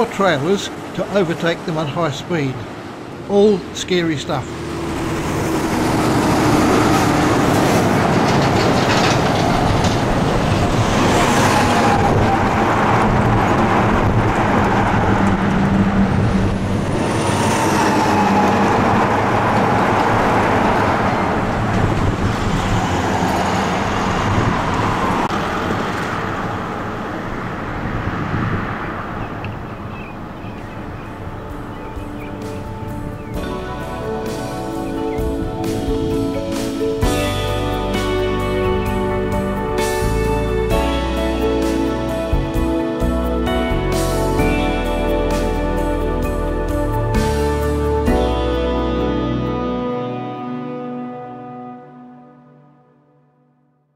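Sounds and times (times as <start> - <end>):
trucks passing at high speed: 0.0 - 49.9.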